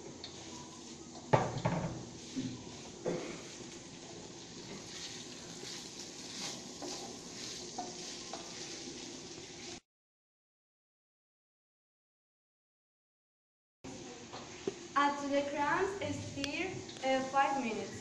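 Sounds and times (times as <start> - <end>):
food sizzling in a frying pan: 0.0 - 9.8, 13.9 - 18.0
spatula scraping pan: 2.2 - 9.8.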